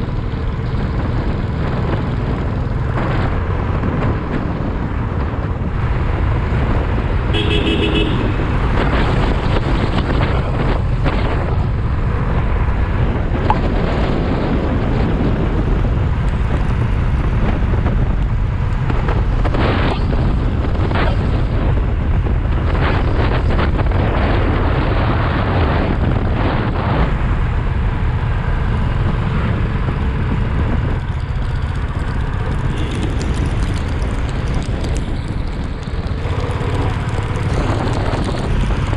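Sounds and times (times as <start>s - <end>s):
motorcycle engine rumble: 0.0s - 38.9s
wind on microphone: 0.0s - 38.9s
vehicle horn beep: 7.3s - 8.5s.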